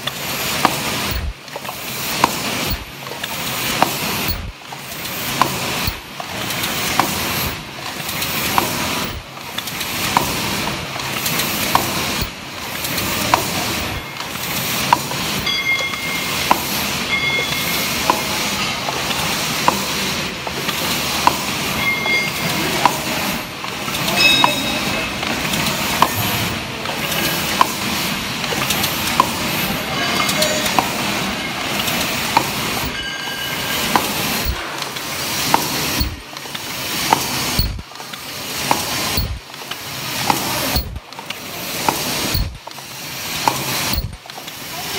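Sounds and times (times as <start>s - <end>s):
machine mechanical clatter: 0.0s - 44.9s
machine sharp click: 33.8s - 39.4s, 40.2s - 42.6s, 43.4s - 44.4s.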